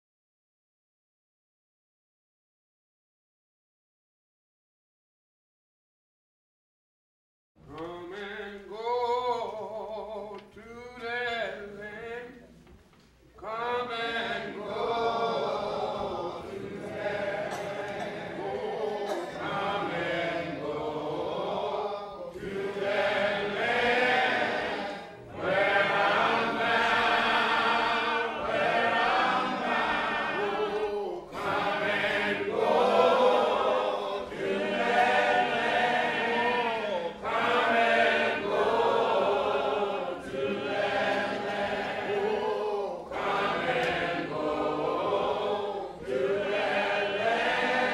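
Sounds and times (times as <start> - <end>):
choir singing: 13.4 - 47.9.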